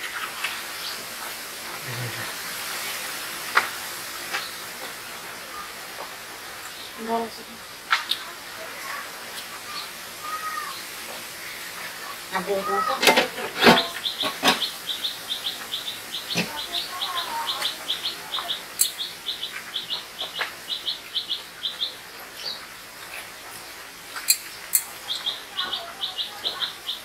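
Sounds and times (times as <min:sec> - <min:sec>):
steel plates and pots clinking: 0:12.8 - 0:14.7.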